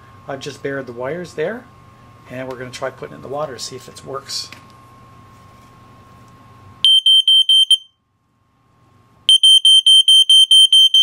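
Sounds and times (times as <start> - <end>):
high-pitched pulsing alarm beep: 6.8 - 8.0, 9.3 - 11.0.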